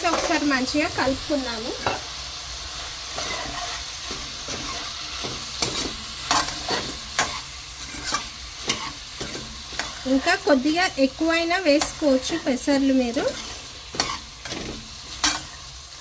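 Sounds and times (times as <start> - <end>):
vegetables sizzling: 0.0 - 16.0
metal ladle scraping a pot: 3.1 - 10.1, 13.1 - 15.7.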